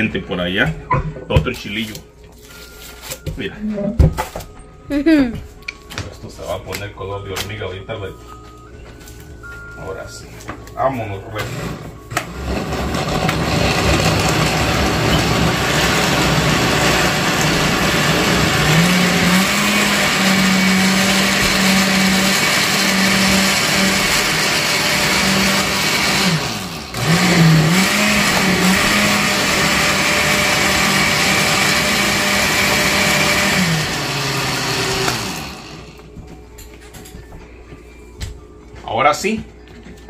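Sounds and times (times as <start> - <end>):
blender motor running: 11.4 - 36.1.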